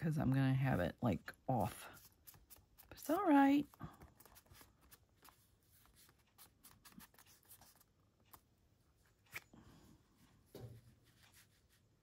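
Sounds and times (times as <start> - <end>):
paper rustling: 1.8 - 8.4.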